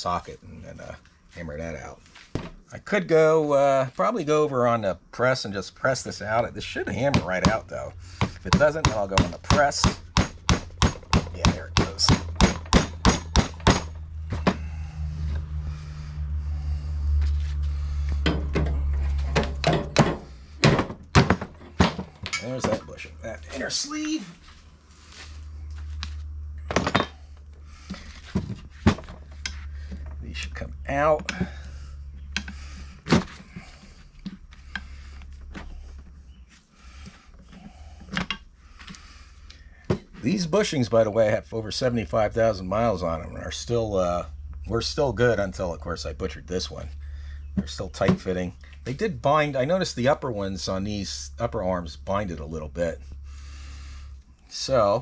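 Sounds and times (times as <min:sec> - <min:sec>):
steady low hum: 0:00.0 - 0:55.0
hard parts knocking on workbench: 0:18.2 - 0:22.9, 0:26.7 - 0:27.2.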